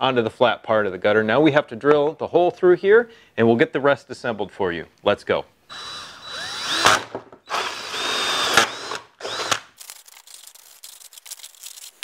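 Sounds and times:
drill boring through plastic: 0:05.7 - 0:09.7.

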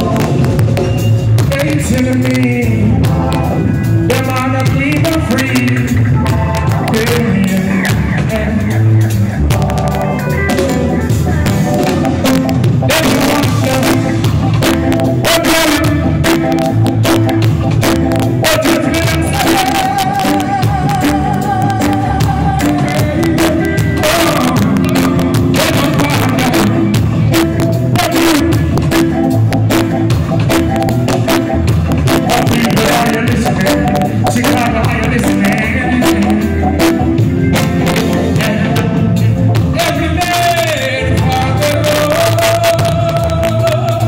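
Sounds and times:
man singing into a microphone: 0:00.0 - 0:17.3, 0:17.9 - 0:29.2, 0:32.1 - 0:44.0
live reggae band playing: 0:00.0 - 0:44.0
drum hits: 0:09.5 - 0:44.0.

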